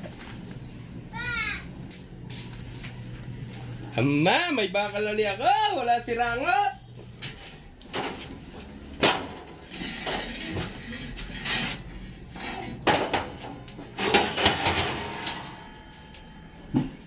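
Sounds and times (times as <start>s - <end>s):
knocks and clatters of metal: 7.3s - 11.8s, 12.4s - 15.8s.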